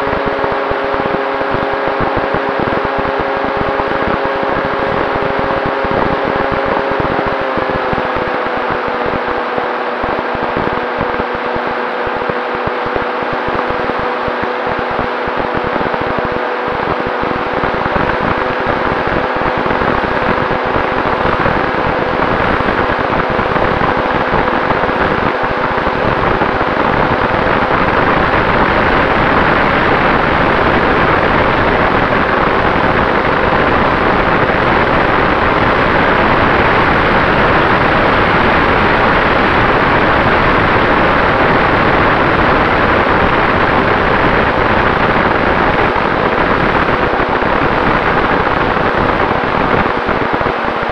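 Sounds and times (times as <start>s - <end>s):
faint motor hum: 0.0s - 50.9s
wind and propeller rush: 0.0s - 50.9s.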